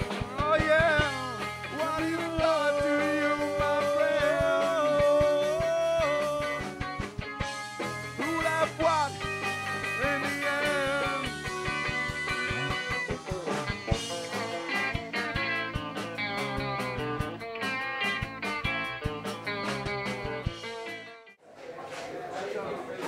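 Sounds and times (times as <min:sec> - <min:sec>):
live rock band playing: 0:00.0 - 0:21.4
sliding guitar melody: 0:00.0 - 0:21.4.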